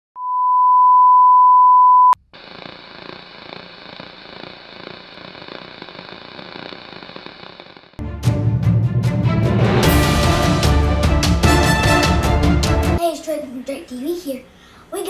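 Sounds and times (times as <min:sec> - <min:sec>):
test-card tone beep: 0:00.2 - 0:02.2
tv static hiss: 0:02.2 - 0:08.0.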